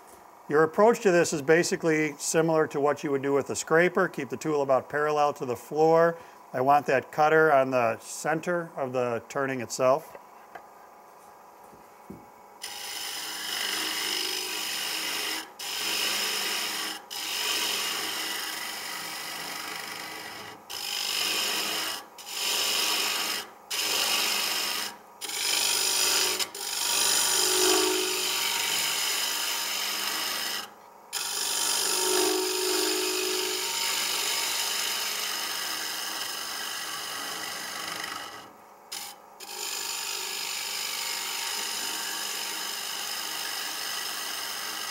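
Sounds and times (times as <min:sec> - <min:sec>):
lathe tool scraping wood: 0:12.6 - 0:44.9.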